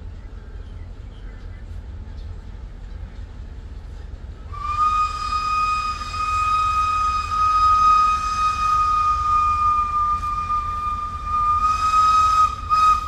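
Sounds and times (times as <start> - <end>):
steam locomotive whistle: 4.5 - 13.0.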